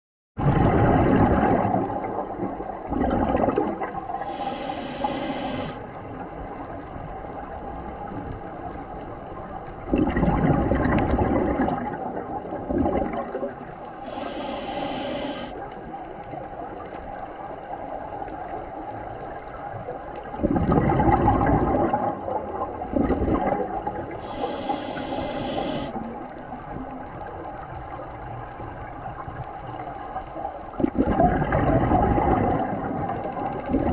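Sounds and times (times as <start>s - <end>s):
exhaled bubbles underwater: 0.4s - 33.9s
regulator inhaling hiss: 4.2s - 5.8s, 14.0s - 15.6s, 24.1s - 26.1s.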